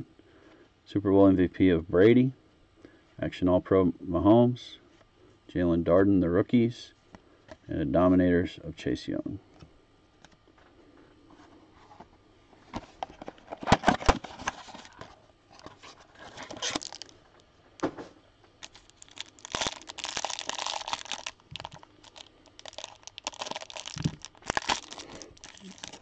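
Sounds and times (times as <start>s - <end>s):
packaging tearing and crinkling: 16.1s - 17.2s, 18.6s - 26.0s.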